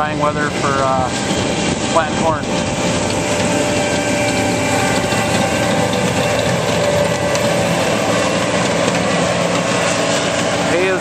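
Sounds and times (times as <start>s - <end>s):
diesel engine drone: 0.0s - 11.0s
machinery tones: 2.6s - 11.0s.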